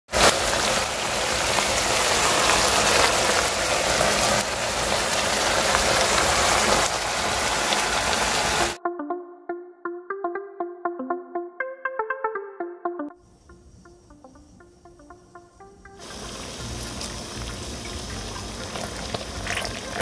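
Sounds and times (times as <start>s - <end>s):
sauce bubbling and sizzling in pot: 0.1s - 8.8s, 16.0s - 20.0s.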